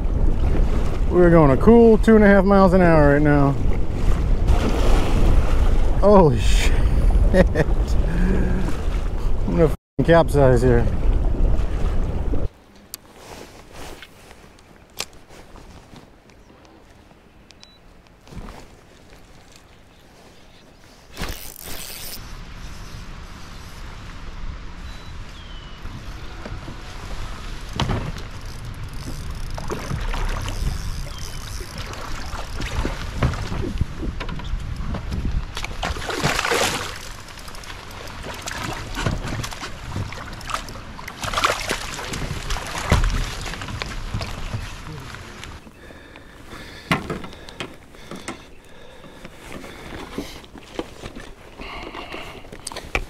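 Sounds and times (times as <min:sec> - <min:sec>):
wind rumble on microphone: 0:00.0 - 0:02.5, 0:03.1 - 0:12.5, 0:22.2 - 0:37.0, 0:41.8 - 0:45.6
fish splashing in water: 0:35.6 - 0:44.8.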